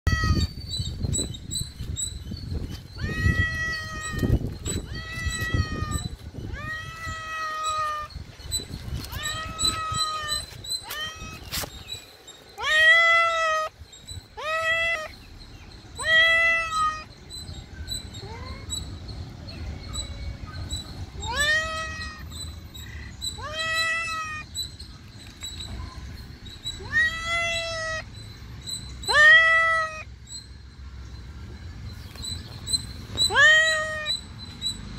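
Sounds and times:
cat meowing: 0:00.1 - 0:00.5, 0:02.9 - 0:08.1, 0:09.0 - 0:11.5, 0:12.6 - 0:13.7, 0:14.3 - 0:15.1, 0:16.0 - 0:17.1, 0:21.1 - 0:22.2, 0:23.4 - 0:24.5, 0:26.8 - 0:28.1, 0:29.1 - 0:30.1, 0:33.3 - 0:34.2.

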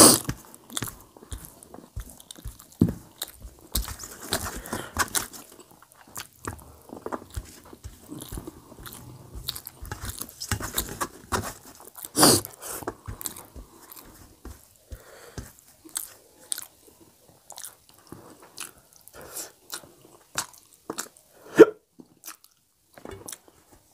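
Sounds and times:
wet chewing and lip smacks: 0:15.9 - 0:16.8, 0:17.4 - 0:21.2, 0:22.0 - 0:22.6.

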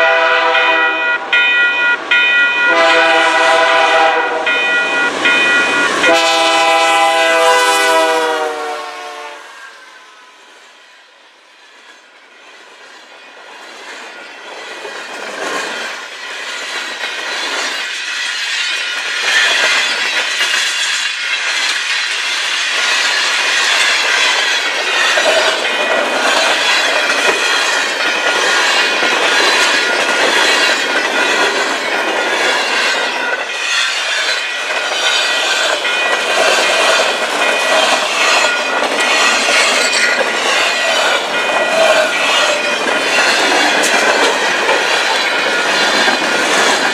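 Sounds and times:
freight train wheels clattering on rails: 0:11.7 - 0:46.9.

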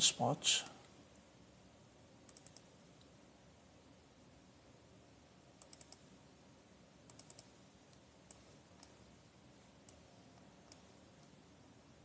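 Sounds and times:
computer mouse clicks: 0:02.3 - 0:03.1, 0:05.6 - 0:06.1, 0:07.0 - 0:09.0, 0:09.8 - 0:11.4.

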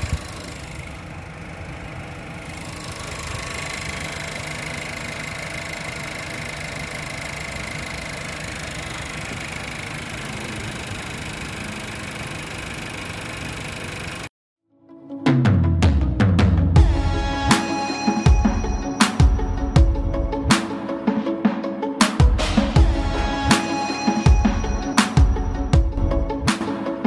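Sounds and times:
car engine idling: 0:00.0 - 0:14.3.

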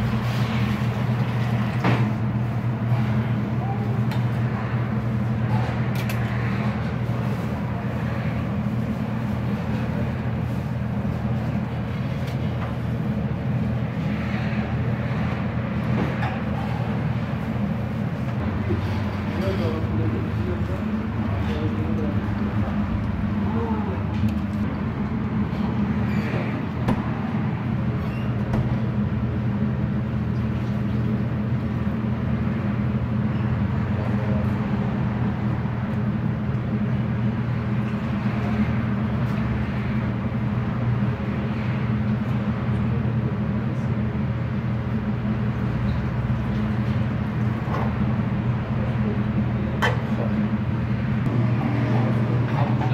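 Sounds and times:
low machine hum: 0:00.0 - 0:52.9.

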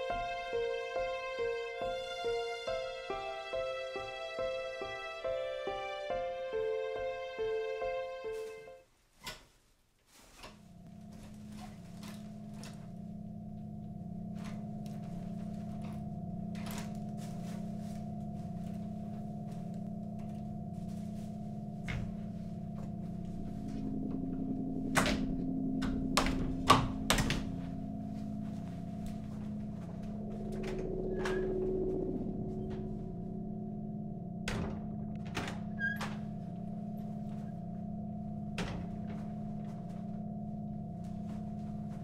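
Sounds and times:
steady low hum: 0:10.5 - 0:42.0
wooden door clicks and knocks: 0:25.0 - 0:27.6, 0:34.5 - 0:36.3, 0:38.6 - 0:39.3.

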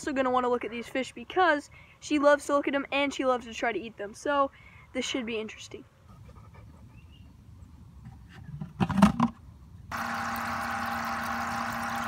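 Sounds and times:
air pump humming and bubbling: 0:09.9 - 0:12.0.

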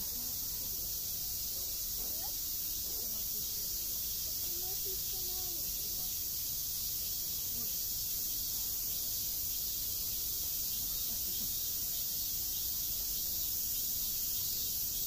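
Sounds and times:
faint distant voices: 0:00.0 - 0:15.0
insect chorus drone: 0:00.0 - 0:15.0.

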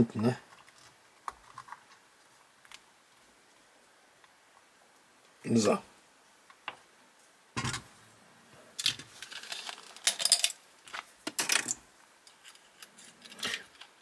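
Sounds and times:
small parts rattling: 0:08.8 - 0:14.0.

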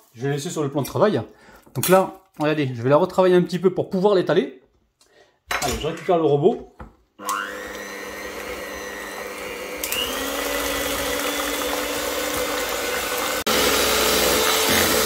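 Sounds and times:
electric hand mixer whine: 0:07.2 - 0:15.0.

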